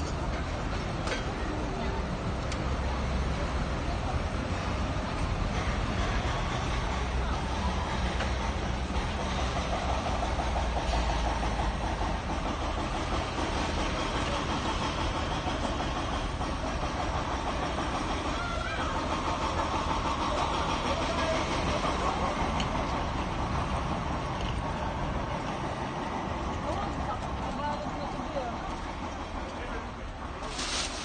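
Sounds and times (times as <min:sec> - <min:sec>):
faint voices: 0:16.6 - 0:31.0.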